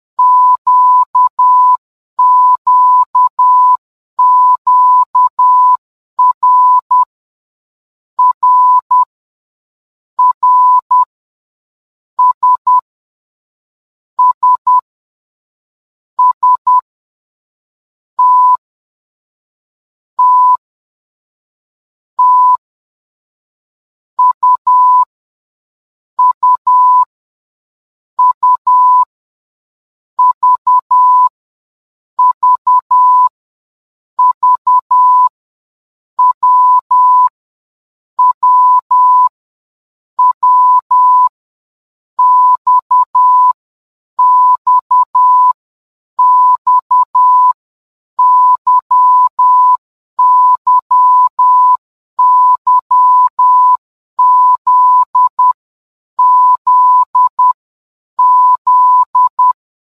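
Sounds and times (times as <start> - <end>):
morse code beeps: 0.2 - 7.1, 8.2 - 9.1, 10.2 - 11.1, 12.2 - 12.8, 14.2 - 14.8, 16.2 - 16.8, 18.2 - 18.6, 20.2 - 20.6, 22.2 - 22.6, 24.2 - 25.1, 26.2 - 27.1, 28.2 - 29.1, 30.2 - 31.3, 32.2 - 33.3, 34.2 - 35.3, 36.2 - 37.3, 38.2 - 39.3, 40.2 - 41.3, 42.2 - 43.6, 44.2 - 45.6, 46.2 - 47.6, 48.2 - 55.6, 56.2 - 57.6, 58.2 - 59.6.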